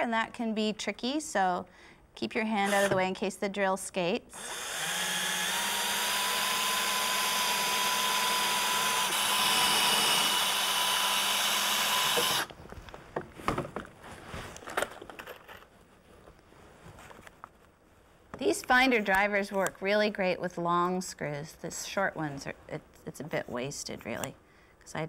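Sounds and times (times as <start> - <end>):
cordless drill drilling wood: 2.6 - 3.0, 4.4 - 12.5.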